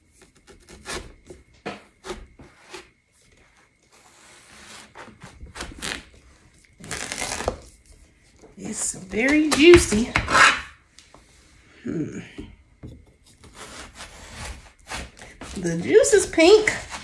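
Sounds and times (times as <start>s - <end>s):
knife cutting watermelon: 0.1s - 6.2s, 13.1s - 17.0s.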